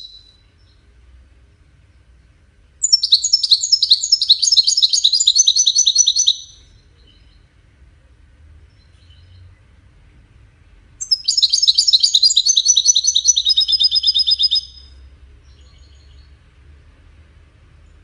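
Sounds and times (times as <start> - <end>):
goldfinch twittering song: 0.0 - 0.8, 2.8 - 7.4, 11.0 - 16.4.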